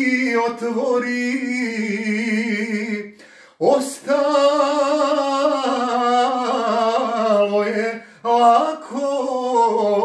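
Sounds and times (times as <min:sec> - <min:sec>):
man singing long notes: 0:00.0 - 0:10.0
breath: 0:03.2 - 0:03.6, 0:08.0 - 0:08.2.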